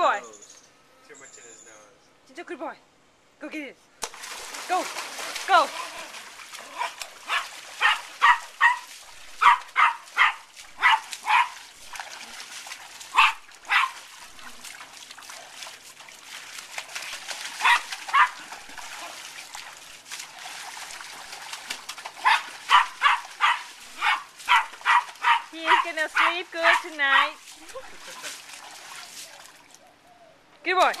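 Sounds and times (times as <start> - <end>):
water splashing in paddling pool: 4.0 - 30.0, 30.7 - 31.0
small dog barking: 6.7 - 11.7, 13.1 - 14.1, 17.6 - 18.5, 22.2 - 27.4.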